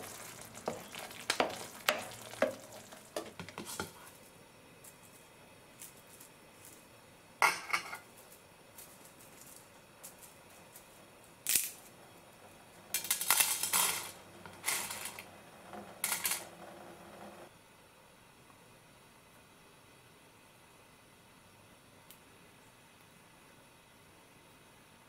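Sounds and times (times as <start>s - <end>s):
pasta sticks clattering on plate: 12.9s - 16.6s.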